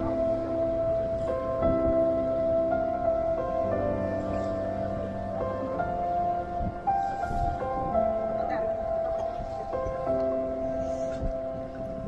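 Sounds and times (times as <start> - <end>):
background music of held notes: 0.0 - 12.0.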